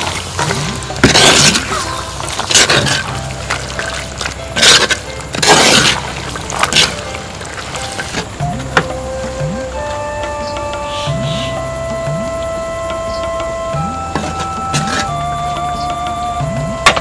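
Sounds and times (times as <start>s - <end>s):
soft background music: 0.0s - 17.0s.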